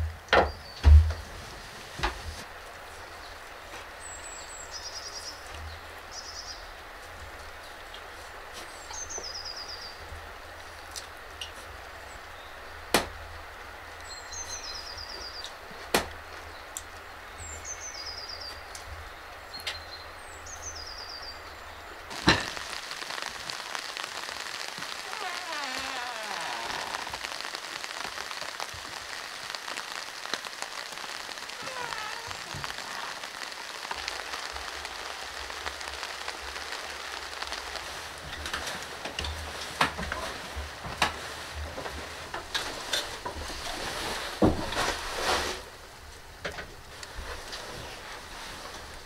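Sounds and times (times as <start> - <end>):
steady outdoor hiss: 0.0 - 49.0
small birds chirping: 3.0 - 6.8, 8.6 - 10.1, 14.0 - 15.6, 16.4 - 37.8.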